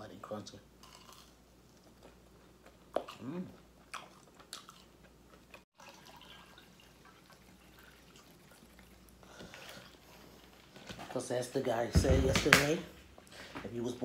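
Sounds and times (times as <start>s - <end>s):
soft chewing clicks: 0.8s - 5.6s.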